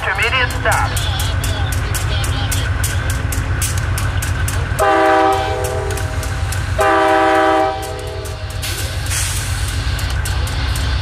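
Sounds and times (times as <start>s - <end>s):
steady low rumble: 0.0s - 11.0s
locomotive air horn blasts: 4.8s - 6.2s, 6.8s - 8.4s.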